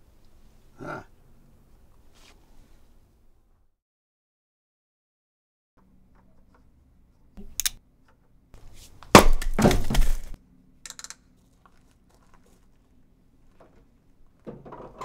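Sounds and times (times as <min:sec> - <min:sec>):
crash of something breaking: 0:09.2 - 0:10.4.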